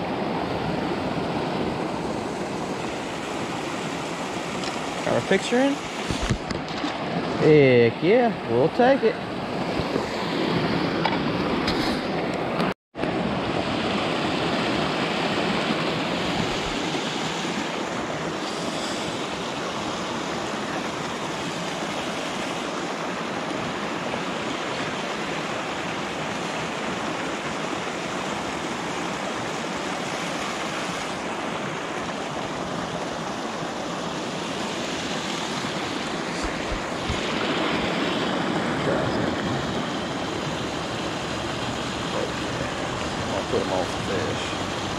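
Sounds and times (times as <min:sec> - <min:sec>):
rushing water: 0:00.0 - 0:44.9
wind: 0:00.0 - 0:44.9.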